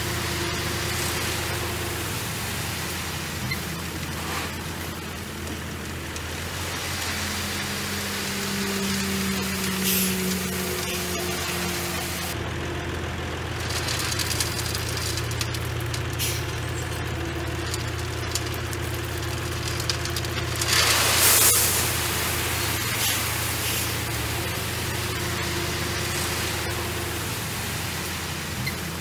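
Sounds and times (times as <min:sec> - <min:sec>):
heavy machine engine running: 0:00.0 - 0:29.0
loud hissing rush: 0:06.3 - 0:12.4, 0:20.6 - 0:29.0.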